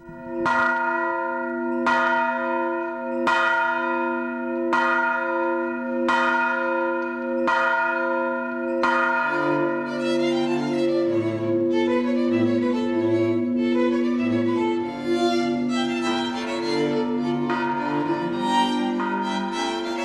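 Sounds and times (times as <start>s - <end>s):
bell tolling: 0.0s - 20.0s
bowed strings: 9.4s - 20.0s.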